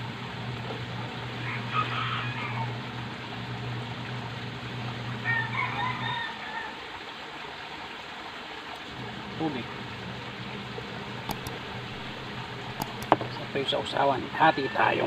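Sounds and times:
steady low hum: 0.0s - 1.7s, 8.9s - 14.0s
rooster crowing: 1.4s - 2.8s, 5.2s - 6.8s, 14.4s - 15.0s.

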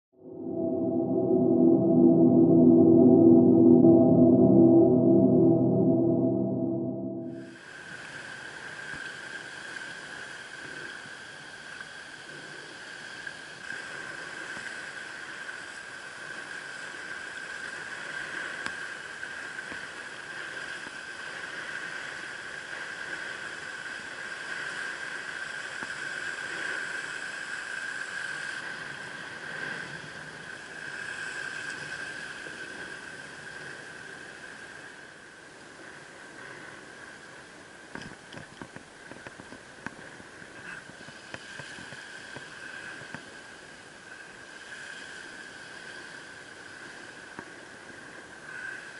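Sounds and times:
steady high-pitched tone: 0.0s - 7.6s.

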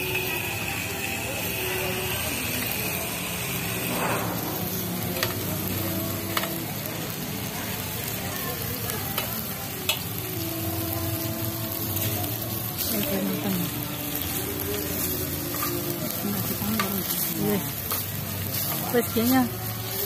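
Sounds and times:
meat sizzling on grill pan: 0.0s - 20.0s
tongs tapping pan: 9.2s - 10.1s.

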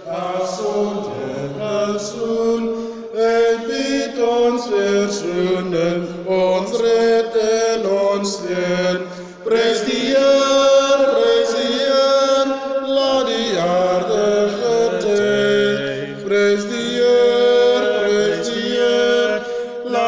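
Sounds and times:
voices singing a hymn: 0.0s - 20.0s.

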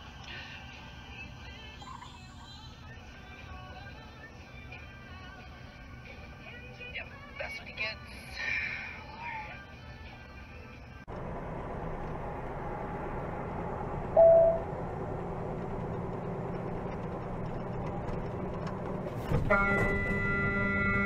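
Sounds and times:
truck road and engine noise: 9.9s - 21.0s
hum with held tones: 14.1s - 14.7s
short loud beep: 14.2s - 14.6s.

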